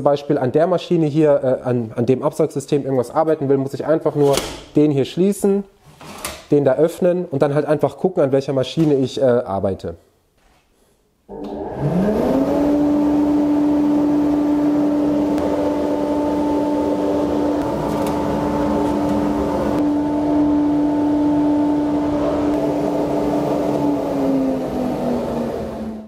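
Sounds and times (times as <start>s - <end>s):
dust extractor running: 11.3s - 26.0s.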